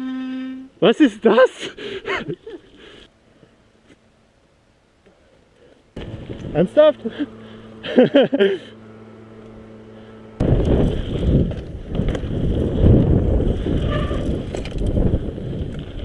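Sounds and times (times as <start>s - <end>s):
low steady hum: 0.0s - 16.0s
person speaking: 0.8s - 1.8s
wind buffeting camera: 6.0s - 6.7s, 10.4s - 16.0s
bike tyres rumbling over gravel: 6.0s - 6.8s, 10.4s - 16.0s.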